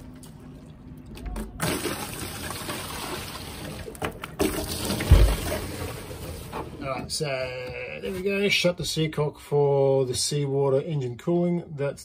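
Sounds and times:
water sloshing and pouring: 0.0 - 6.8.

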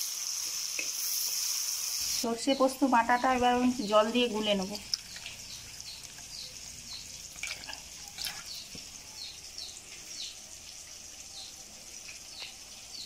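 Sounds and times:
water splashing: 3.4 - 9.0
hand stirring paste in water: 4.5 - 8.9.

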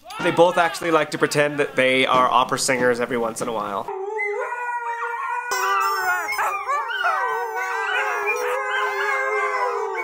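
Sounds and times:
dogs howling together: 3.9 - 10.0.

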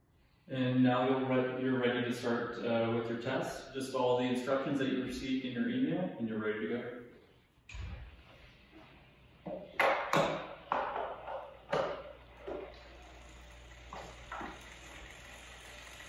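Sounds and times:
clicks of cycling shoes and pedals: 9.4 - 16.0.

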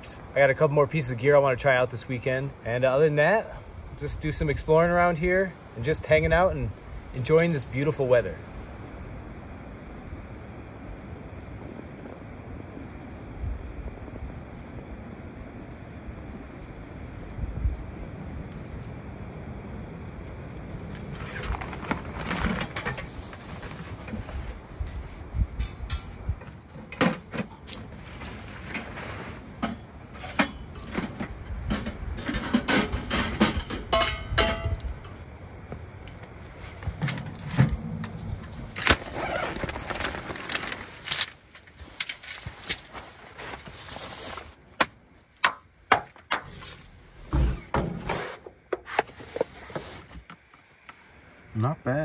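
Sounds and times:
metal poles clacking: 24.8 - 27.6, 29.6 - 35.2
fabric bags rustling: 38.1 - 44.7.

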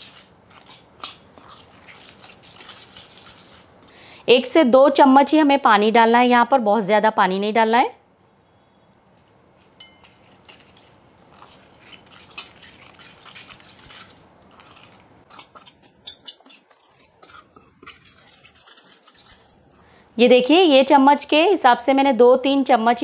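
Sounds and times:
spoon stirring paste in metal bowl: 0.0 - 4.0, 9.6 - 21.0
spoon clinking against bowl: 9.8 - 10.8.

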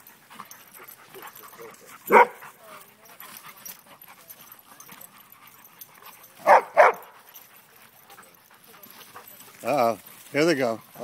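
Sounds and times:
dog barking: 2.1 - 2.4, 6.4 - 7.2.

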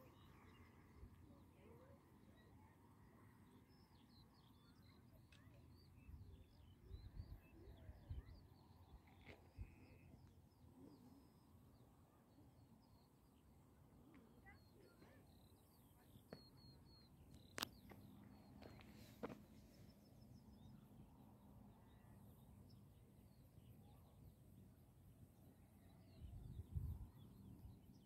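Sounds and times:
birds chirping: 14.4 - 20.9.

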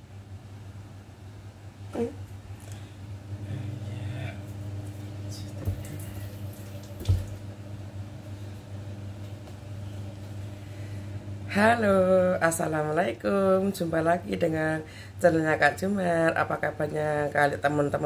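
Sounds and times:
low electrical hum: 0.0 - 18.0
water running from tap: 5.5 - 7.4.

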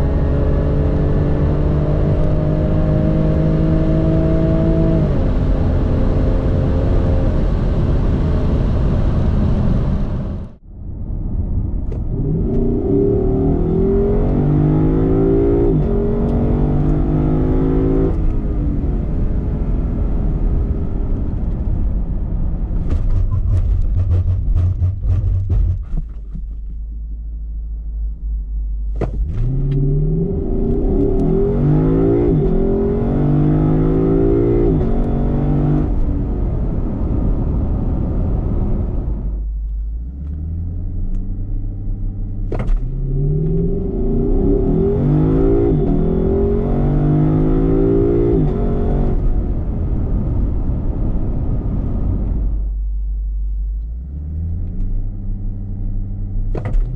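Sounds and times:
sports car engine revving: 0.0 - 10.5, 12.1 - 19.9, 28.9 - 49.6.

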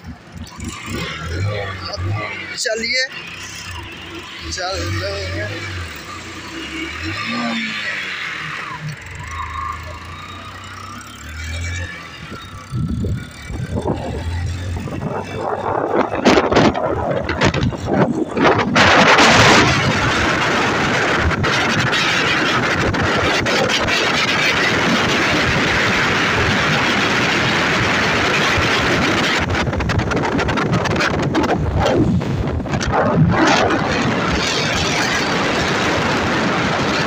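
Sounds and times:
vehicle engine and road noise: 0.0 - 37.0
wind hissing over microphone: 12.2 - 37.0.

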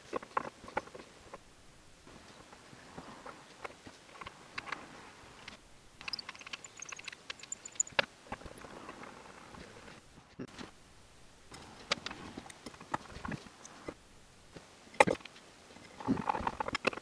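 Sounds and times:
metal parts clicking on wood: 3.6 - 9.6, 15.0 - 17.0.

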